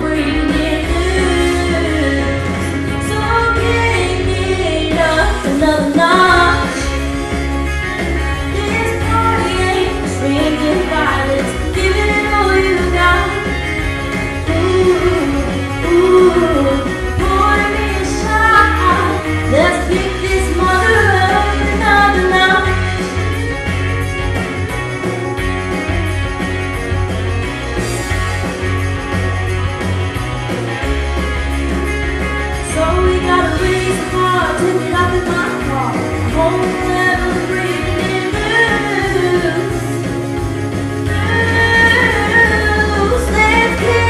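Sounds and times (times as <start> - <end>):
female singer singing: 0.0 - 7.1, 8.4 - 23.2, 32.6 - 40.4, 41.0 - 44.0
country-rock band accompaniment: 0.0 - 44.0.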